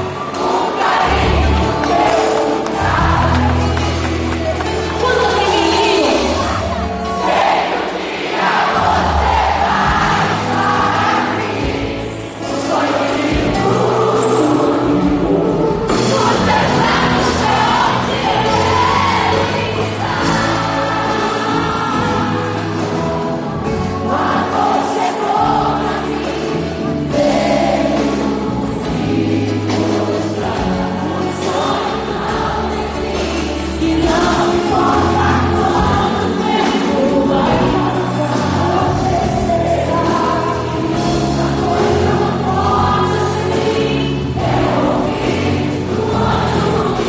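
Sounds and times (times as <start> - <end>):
many voices singing together: 0.0 - 4.8, 6.1 - 47.0
live band playing pop music: 0.0 - 47.0
female singers: 9.4 - 47.0.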